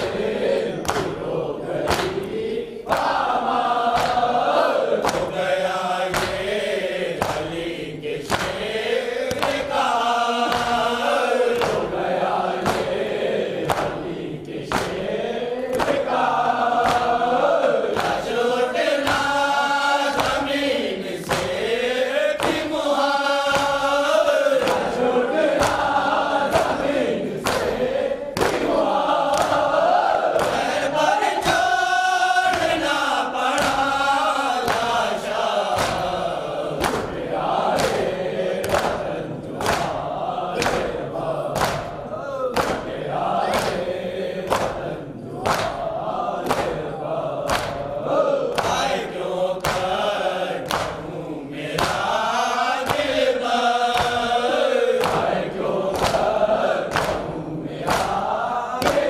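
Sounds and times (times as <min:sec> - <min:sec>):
men chanting in unison: 0:00.0 - 0:59.0
hands striking chests: 0:28.4 - 0:29.7, 0:41.6 - 0:42.9, 0:47.5 - 0:47.8.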